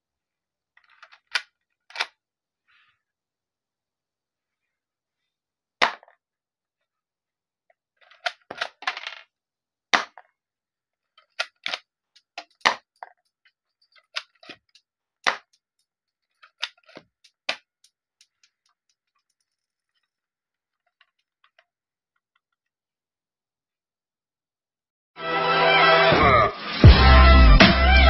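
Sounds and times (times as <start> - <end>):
toy pistol plastic snaps and clacks: 1.0 - 2.2, 11.2 - 13.2, 16.4 - 18.8.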